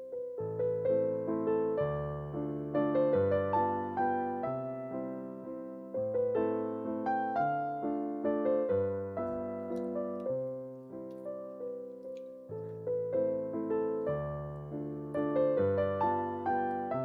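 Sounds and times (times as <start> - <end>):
gentle solo piano piece: 0.0 - 17.0.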